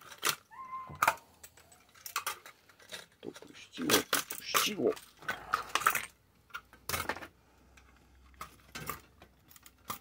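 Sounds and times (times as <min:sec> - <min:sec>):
metal parts clattering on workbench: 0:00.0 - 0:07.4, 0:08.3 - 0:10.0.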